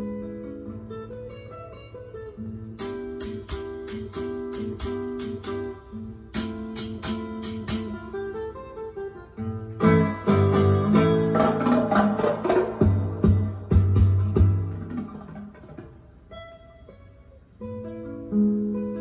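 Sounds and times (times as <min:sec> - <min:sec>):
plucked guitar record playing: 0:00.0 - 0:19.0
percussion: 0:02.8 - 0:08.4, 0:09.8 - 0:16.4.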